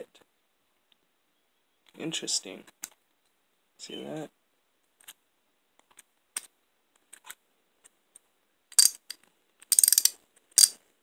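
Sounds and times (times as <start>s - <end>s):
ratchet clicking: 8.8s - 9.1s, 9.7s - 10.8s.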